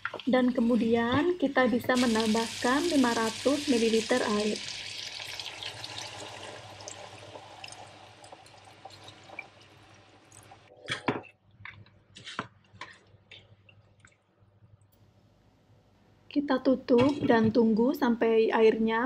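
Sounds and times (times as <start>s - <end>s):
water sizzling in hot wok: 1.9s - 10.7s.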